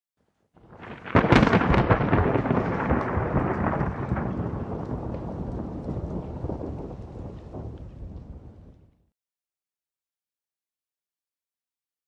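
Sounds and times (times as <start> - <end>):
thunder crack and rumble: 0.6 - 9.1.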